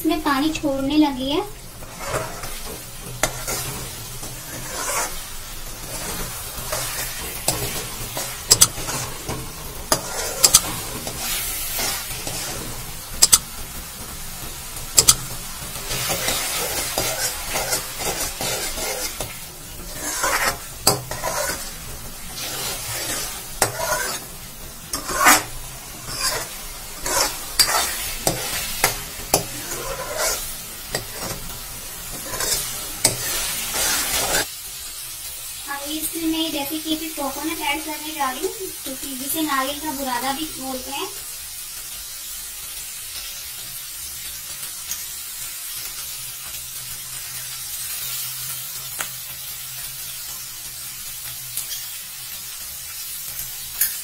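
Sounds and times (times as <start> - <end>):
mash sizzling: 0.0 - 54.0
spoon scraping a metal pan: 1.8 - 13.4, 15.0 - 15.2, 15.9 - 21.8, 22.4 - 24.3, 24.9 - 34.5.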